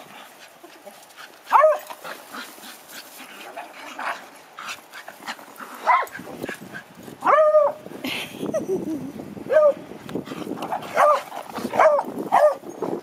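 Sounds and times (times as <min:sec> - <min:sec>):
dogs barking: 0:01.5 - 0:02.1, 0:05.8 - 0:06.2, 0:07.2 - 0:07.8, 0:09.5 - 0:09.8, 0:10.7 - 0:12.7.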